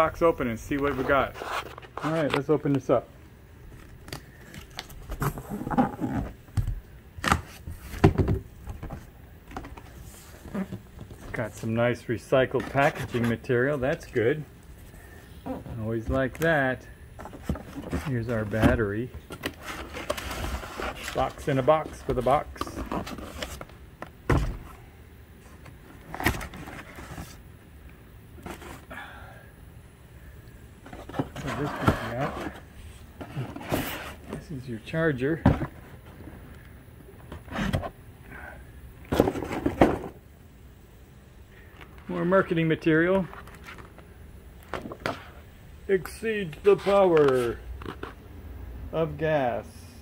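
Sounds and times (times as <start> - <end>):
cardboard scraping and rubbing: 0.6 - 2.5, 17.2 - 23.7, 26.1 - 27.4, 30.9 - 34.5, 37.3 - 38.0.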